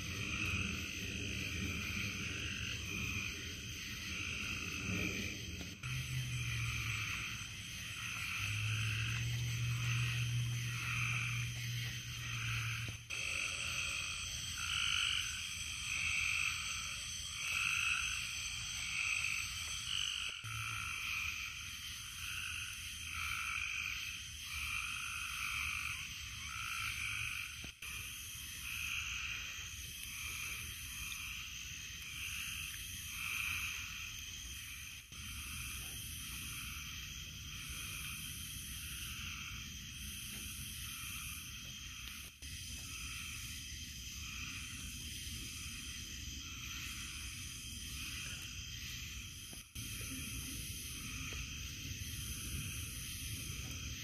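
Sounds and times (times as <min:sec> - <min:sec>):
low hum: 0:00.0 - 0:13.3
frogs trilling: 0:00.0 - 0:54.0
high-pitched hiss: 0:00.0 - 0:54.0.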